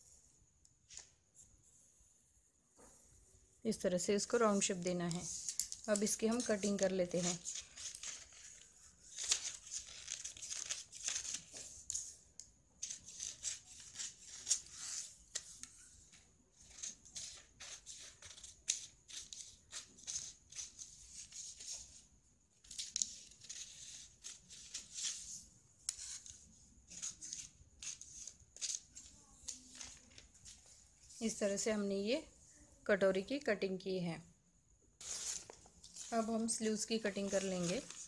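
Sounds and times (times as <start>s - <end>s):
paper rustling: 4.6s - 12.2s, 22.6s - 31.1s, 35.0s - 38.0s.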